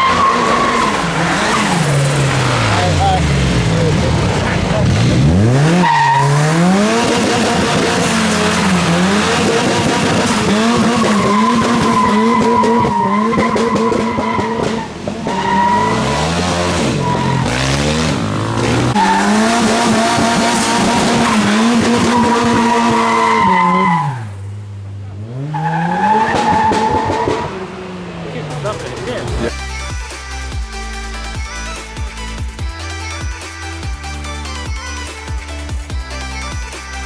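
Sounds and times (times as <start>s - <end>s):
car engine revving hard: 0.0s - 24.2s
tyres spinning and squealing: 0.0s - 24.4s, 25.2s - 29.5s.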